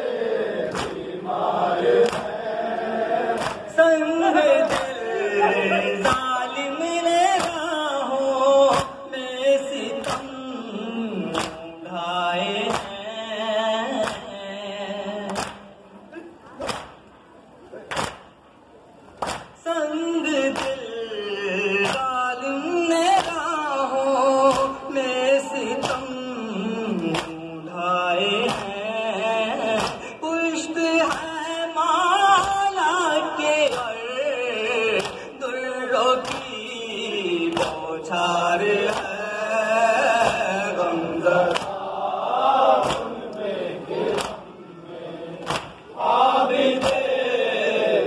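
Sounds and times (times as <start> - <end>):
man chanting into a microphone: 3.2 - 15.9, 19.6 - 42.3.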